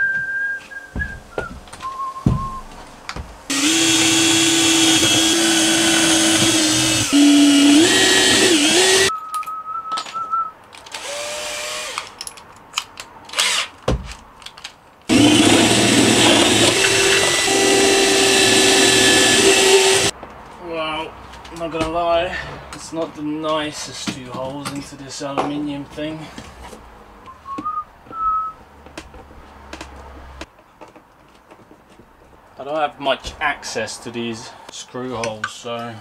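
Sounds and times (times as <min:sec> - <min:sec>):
cordless drill drilling into metal: 0:03.5 - 0:09.1, 0:10.9 - 0:12.1, 0:15.1 - 0:20.1.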